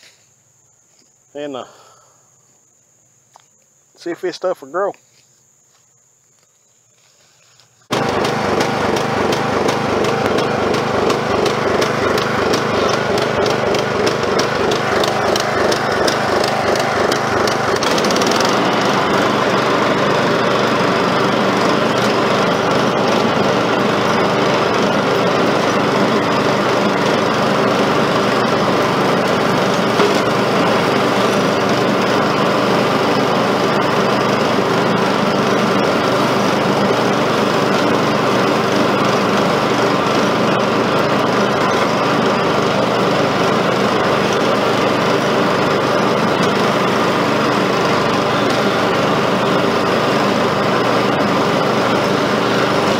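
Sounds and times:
ride-on mower engine running: 7.8s - 52.9s.

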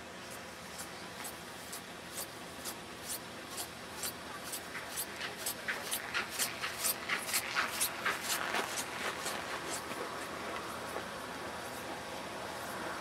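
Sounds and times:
footsteps crunching on snow: 6.8s - 11.0s.

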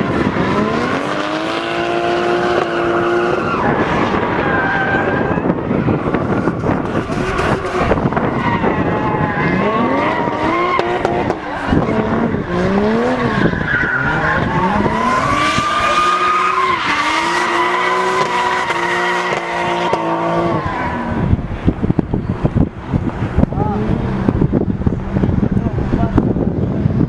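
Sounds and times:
car engine revving: 0.0s - 27.0s
tyres squealing: 7.0s - 21.1s.

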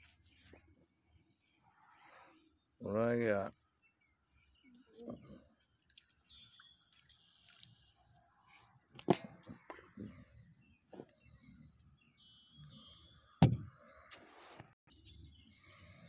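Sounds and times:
high insect trill: 0.0s - 16.0s
sharp knocks: 13.4s - 13.7s.

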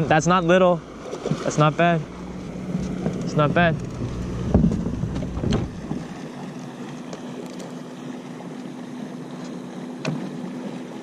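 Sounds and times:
low rumble: 0.2s - 6.2s
electric motor humming: 0.4s - 11.0s.

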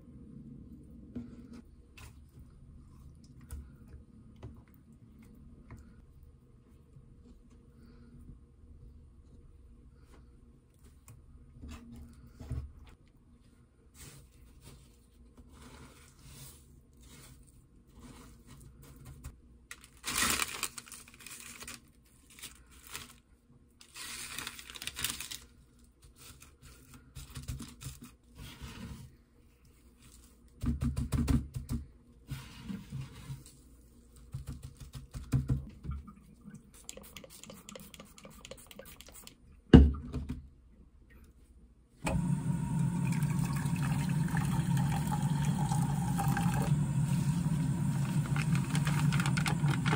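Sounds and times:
soft rustling and squishing: 0.6s - 30.6s, 31.9s - 39.5s, 47.1s - 49.9s
water pouring into a saucepan: 42.6s - 49.9s.

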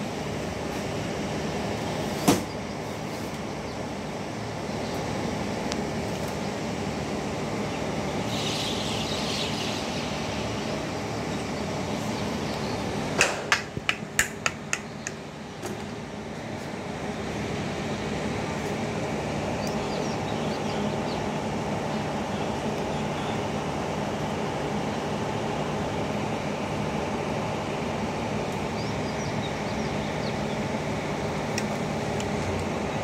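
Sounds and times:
workshop hum: 0.0s - 33.0s
sharp taps on plastic fan: 13.2s - 15.2s.

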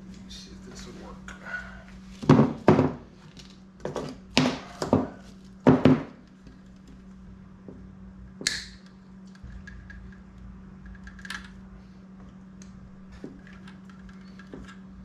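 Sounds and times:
faint steady hum: 0.0s - 15.0s
knocks and taps on wooden bench: 5.7s - 6.2s.

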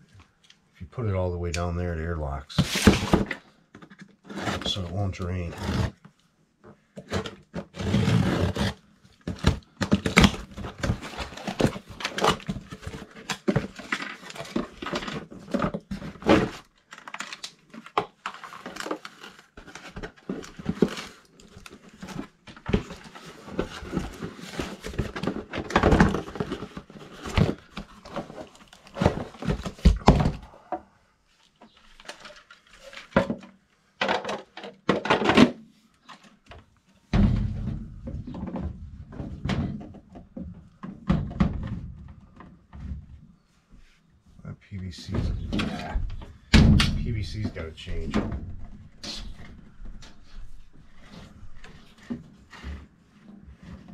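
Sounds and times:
plastic clicks and rustles: 9.1s - 29.8s, 31.4s - 36.9s.

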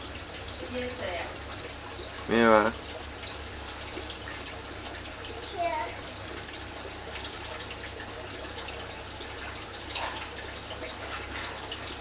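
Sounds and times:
water bubbling and trickling: 0.0s - 12.0s.

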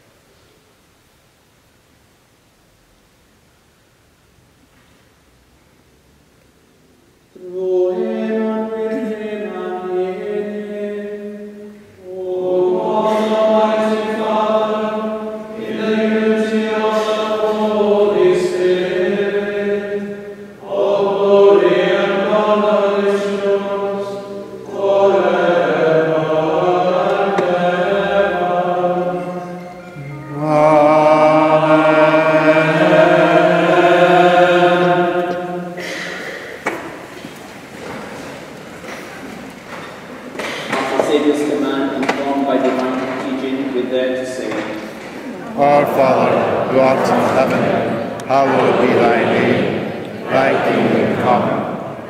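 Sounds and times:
men chanting plainsong: 30.0s - 35.8s, 40.7s - 51.9s.

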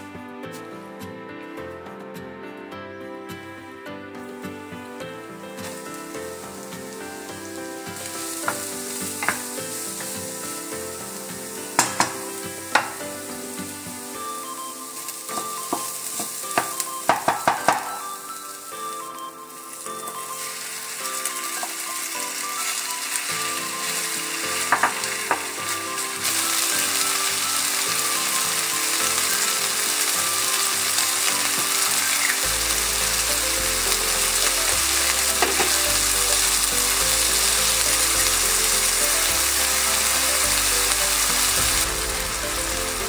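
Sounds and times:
quiet background music: 0.0s - 43.0s
meat and onion sizzling in wok: 4.3s - 43.0s
spatula knocking on wok: 11.8s - 12.2s, 15.6s - 18.0s.

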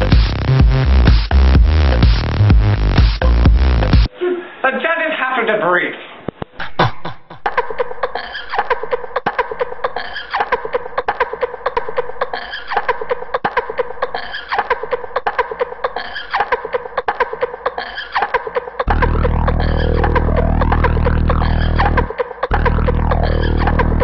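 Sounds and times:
looped laughter-like sounds: 6.6s - 24.0s
deep steady music track: 18.9s - 24.0s.

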